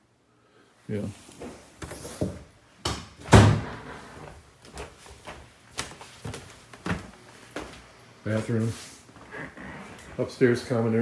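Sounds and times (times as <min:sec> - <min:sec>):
door being pulled shut: 0:03.2 - 0:03.9
footsteps: 0:03.6 - 0:10.4.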